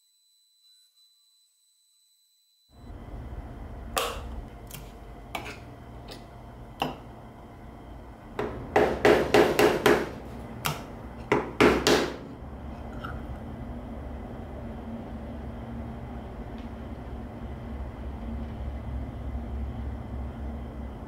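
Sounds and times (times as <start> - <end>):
low steady hum: 2.8 - 21.0.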